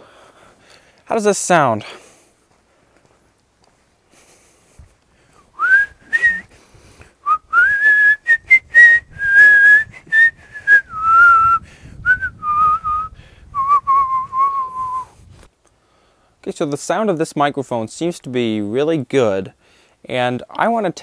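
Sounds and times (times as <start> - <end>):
man whistling a tune: 5.6 - 6.5, 7.2 - 15.2.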